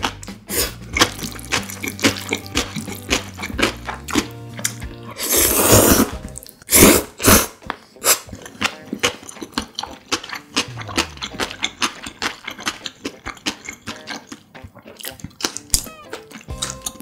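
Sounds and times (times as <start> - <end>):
wet chewing with mouth clicks: 0.0 - 5.3, 7.7 - 17.0
wet noodle slurps: 5.2 - 8.3.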